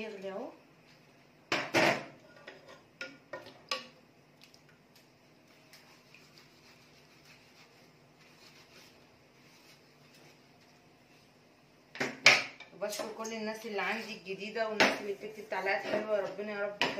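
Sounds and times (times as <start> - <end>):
sponge scrubbing knife: 5.8 - 9.8.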